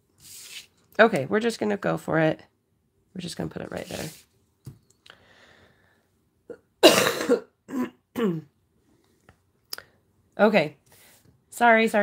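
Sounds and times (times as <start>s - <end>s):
woman coughing: 6.8s - 8.5s.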